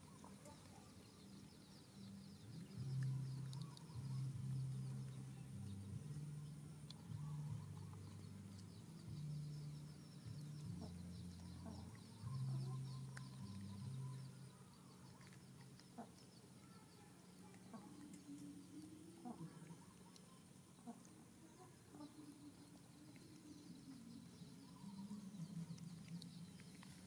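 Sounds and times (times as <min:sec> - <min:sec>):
chickens clucking: 0:10.4 - 0:14.3, 0:15.1 - 0:16.5, 0:17.4 - 0:27.0.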